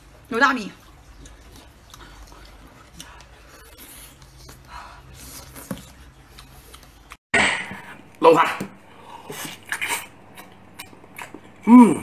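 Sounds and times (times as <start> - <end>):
wet mouth eating noises: 0.8 - 4.6, 9.2 - 11.6.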